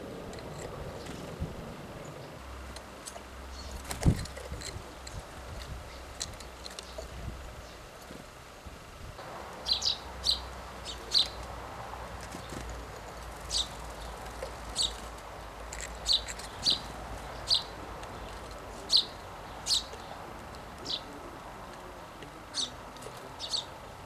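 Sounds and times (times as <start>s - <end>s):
songbirds chirping: 0.0s - 24.0s.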